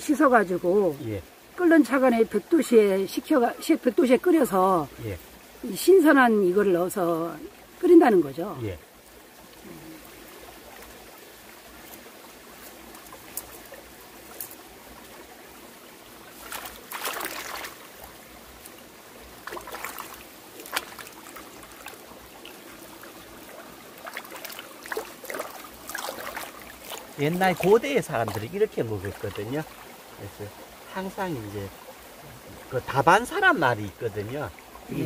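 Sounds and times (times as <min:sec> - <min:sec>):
stream trickling over rocks: 0:00.0 - 0:35.0
herbs splashing in water: 0:16.4 - 0:17.8.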